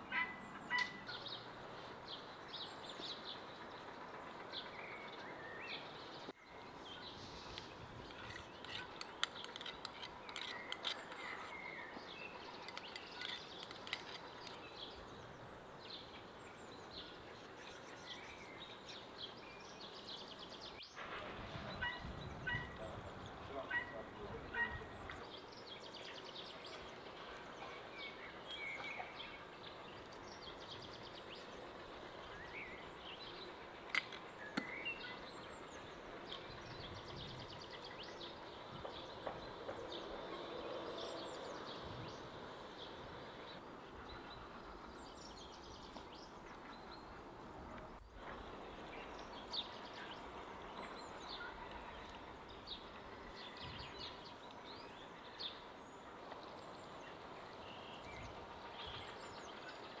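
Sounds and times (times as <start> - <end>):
outdoor background noise: 0.0 - 60.0
small birds chirping: 0.0 - 60.0.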